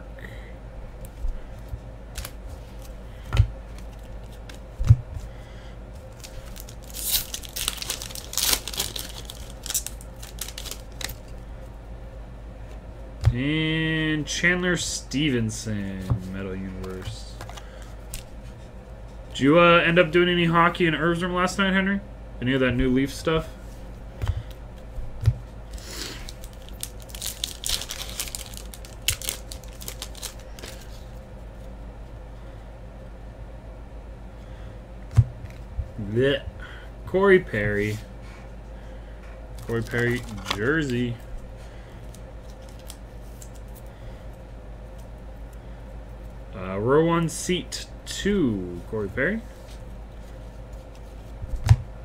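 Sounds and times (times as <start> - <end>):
foil wrapper tearing and crinkling: 6.1 - 11.4, 25.7 - 31.1, 39.6 - 41.2, 42.0 - 43.8.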